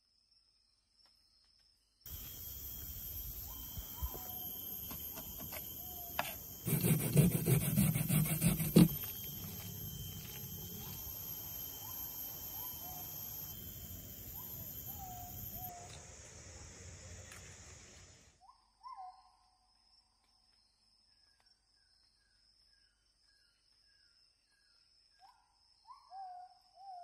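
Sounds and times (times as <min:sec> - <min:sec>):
outdoor background noise: 0:00.0 - 0:27.0
bird calling: 0:02.1 - 0:15.9.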